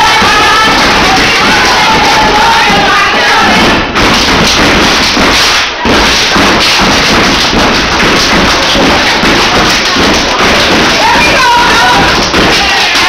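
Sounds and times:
feet stomping on a hard floor: 0.0s - 13.0s
hands clapping and slapping: 0.0s - 13.0s.

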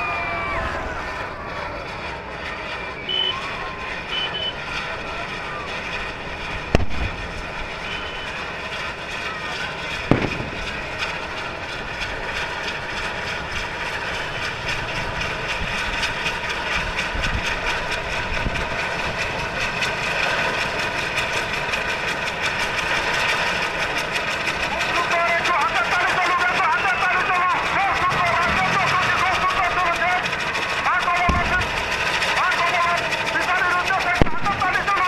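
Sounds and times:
sharp firework crack: 6.7s - 7.4s, 10.1s - 11.1s, 31.3s - 32.0s
firework fountain hissing: 9.9s - 12.3s.

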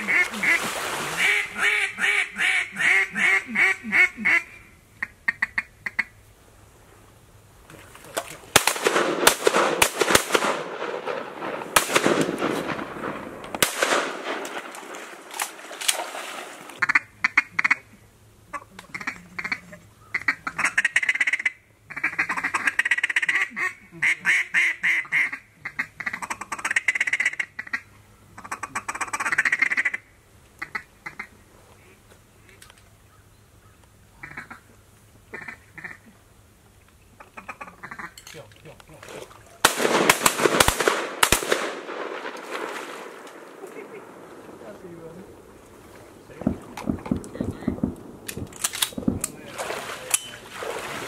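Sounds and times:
ducks quacking: 0.0s - 6.2s, 16.8s - 27.8s, 34.2s - 34.7s, 35.3s - 36.1s, 37.2s - 38.2s.

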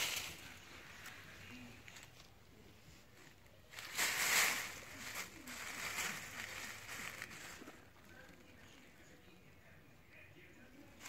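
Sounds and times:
dry leaves rustling and crunching: 0.0s - 2.3s, 3.1s - 9.0s.

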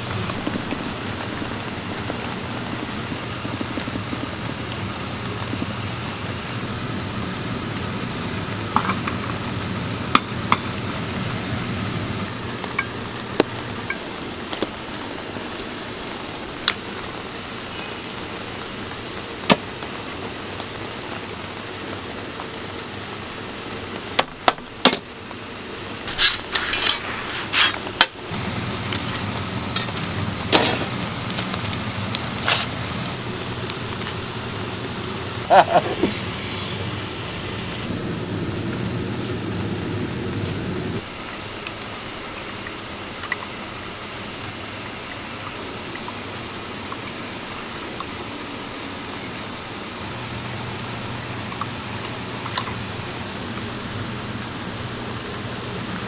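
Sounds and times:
sharp crackles and clicks: 0.0s - 22.6s, 26.0s - 49.3s, 49.9s - 56.0s
background hum: 28.2s - 56.0s.

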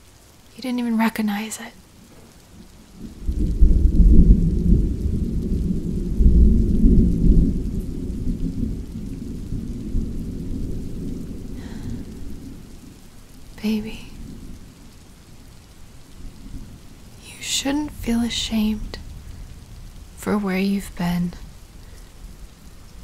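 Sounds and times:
steady rain: 0.0s - 23.0s
thunder rumbling: 1.9s - 23.0s
soft voice: 13.6s - 14.2s.

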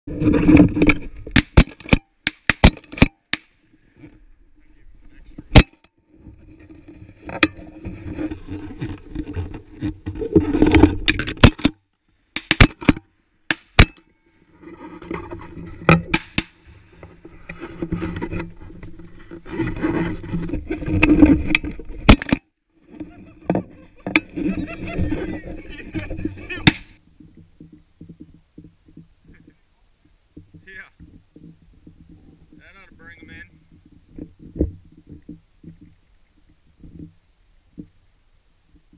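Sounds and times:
rustling noise: 0.1s - 1.9s, 2.6s - 13.2s, 14.0s - 38.9s.

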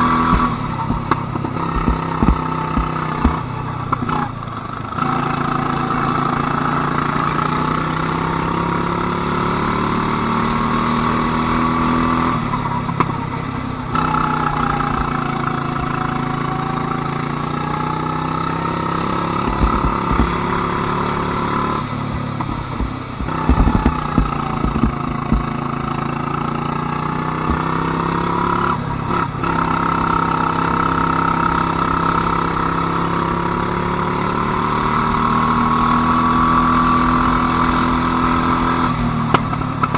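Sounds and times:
go-kart engine accelerating: 0.0s - 39.9s
sharp knocks: 0.2s - 3.5s, 19.4s - 20.7s, 22.2s - 25.6s, 27.4s - 27.8s.

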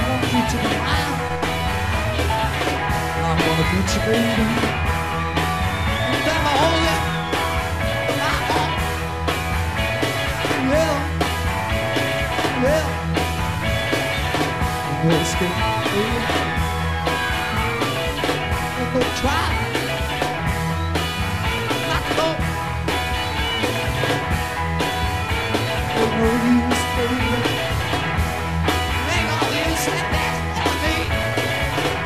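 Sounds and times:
person singing: 0.0s - 1.6s, 3.0s - 4.8s, 6.0s - 7.4s, 8.0s - 8.8s, 10.5s - 11.1s, 12.4s - 13.0s, 14.9s - 16.5s, 18.7s - 20.0s, 25.9s - 27.8s, 29.0s - 31.2s
rock music with drums and guitar: 0.0s - 32.0s.

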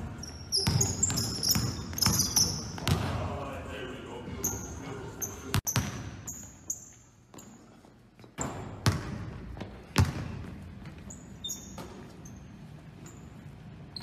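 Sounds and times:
sneaker squeaks: 0.0s - 3.0s, 4.4s - 14.0s.

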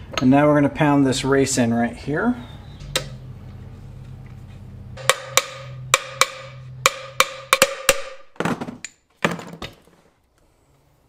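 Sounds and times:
hammer striking steel: 5.0s - 8.3s.

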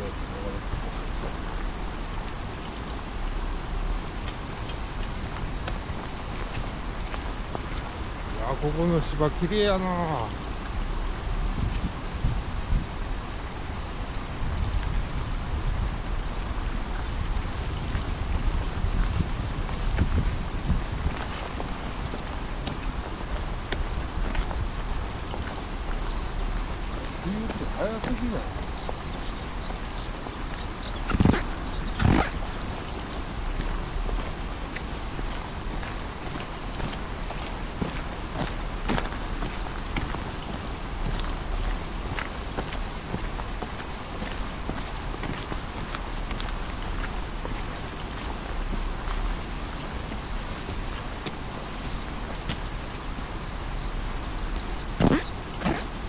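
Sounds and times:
heavy rain: 0.0s - 56.0s.

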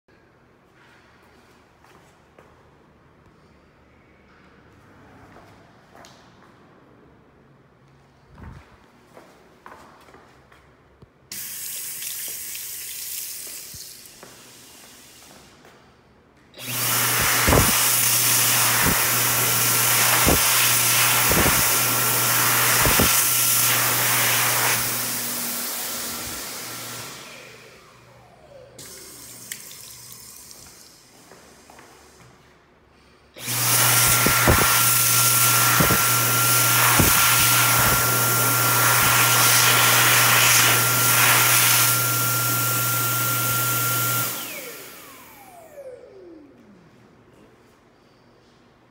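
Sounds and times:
sensor faucet running: 11.3s - 14.3s, 28.8s - 31.1s
hand dryer blowing air: 11.3s - 15.7s, 16.6s - 32.4s, 33.4s - 46.6s.

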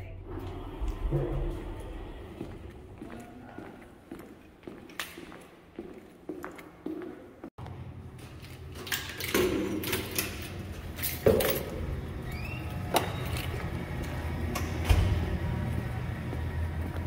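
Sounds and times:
footsteps: 0.3s - 8.7s, 15.0s - 17.0s.

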